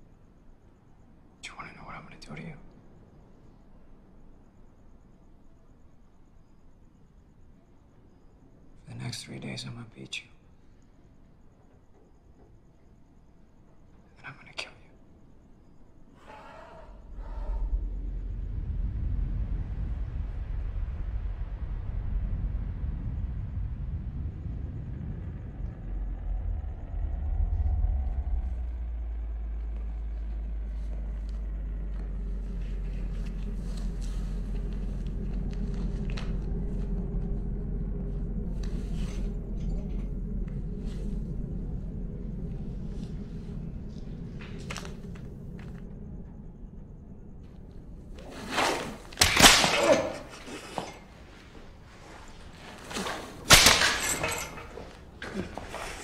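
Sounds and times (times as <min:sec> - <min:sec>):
low steady drone: 0:10.4 - 0:56.0
whip cracks: 0:48.8 - 0:50.2, 0:53.5 - 0:54.2.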